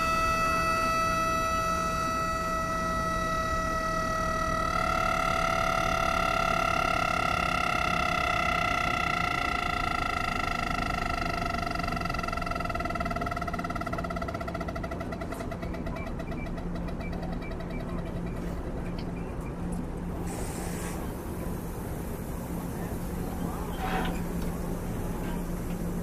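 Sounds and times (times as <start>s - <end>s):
train high-pitched horn tone: 0.0s - 12.6s, 23.5s - 25.8s.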